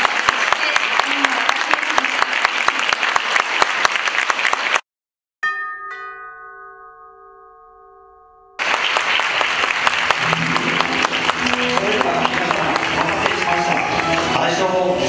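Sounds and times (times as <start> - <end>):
audience applauding: 0.0 - 4.8, 8.6 - 15.0
chime notes ringing: 5.4 - 8.6, 10.2 - 14.3.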